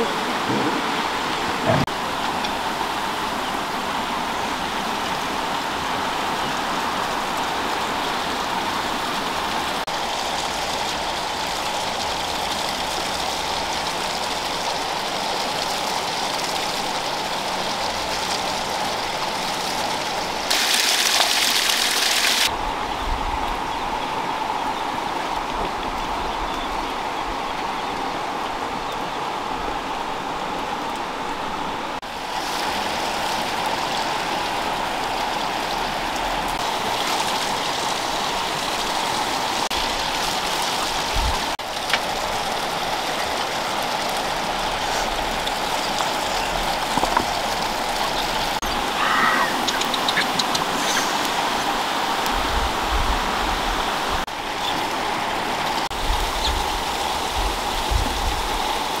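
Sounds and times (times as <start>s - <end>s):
steady rushing hiss: 28.0s - 59.0s.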